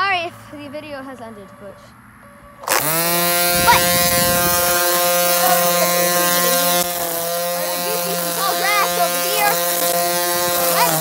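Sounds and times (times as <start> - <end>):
string trimmer buzzing: 2.6 - 11.0.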